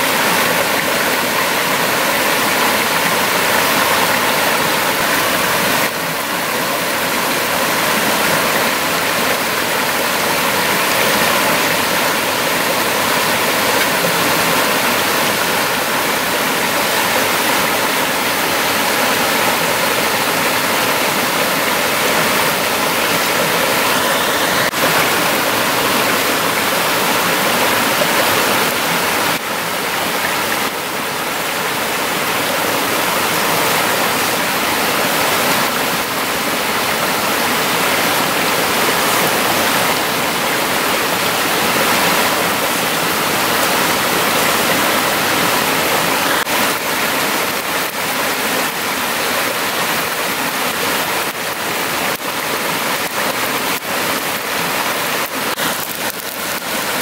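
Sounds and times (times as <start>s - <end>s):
stream splashing over rocks: 0.0s - 57.0s.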